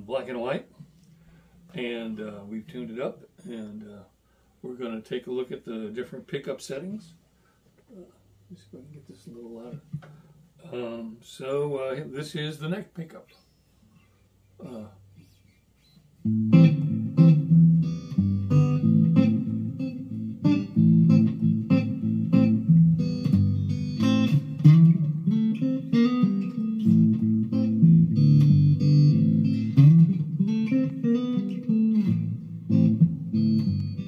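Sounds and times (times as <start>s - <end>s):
electric guitar picked notes: 16.2s - 34.0s.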